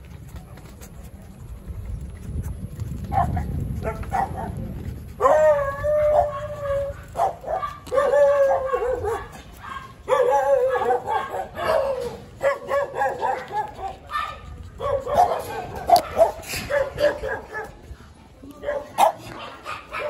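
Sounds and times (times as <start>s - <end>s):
low wind rumble: 0.0s - 19.2s
dog howling: 5.2s - 9.2s
dog yipping: 5.2s - 17.7s.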